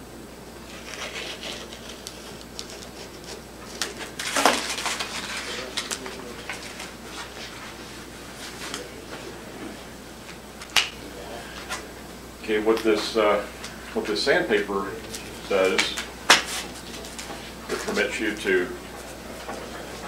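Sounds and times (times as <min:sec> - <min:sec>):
sandpaper rustling and scraping: 0:00.7 - 0:06.1.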